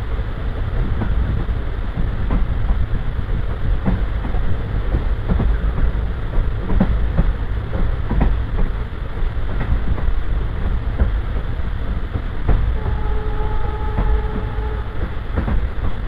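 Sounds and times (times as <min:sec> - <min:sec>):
train wheels rumbling on rail: 0:00.0 - 0:16.0
clicks from rail joints: 0:03.5 - 0:08.8, 0:13.9 - 0:16.0.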